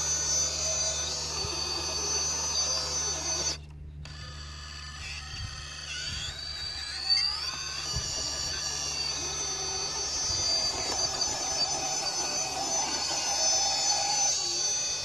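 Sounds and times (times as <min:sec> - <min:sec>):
electric motor whining: 0:00.0 - 0:15.0.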